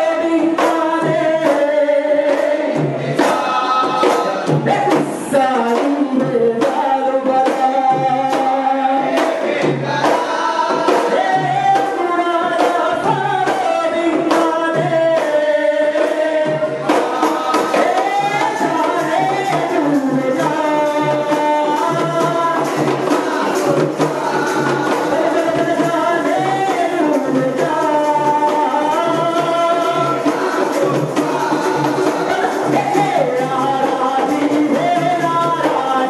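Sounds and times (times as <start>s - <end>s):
hand-beaten drums: 0.0s - 36.0s
men singing in chorus: 0.0s - 36.0s.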